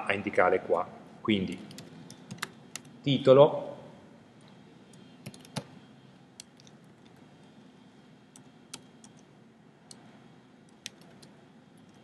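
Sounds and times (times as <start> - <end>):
keyboard keys clicking: 1.7 - 2.9, 5.2 - 5.7, 10.8 - 12.0.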